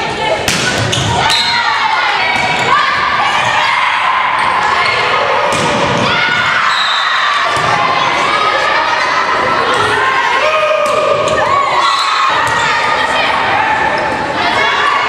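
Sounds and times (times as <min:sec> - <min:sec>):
people shouting and calling: 0:00.0 - 0:15.0
volleyball being hit: 0:05.5 - 0:06.1.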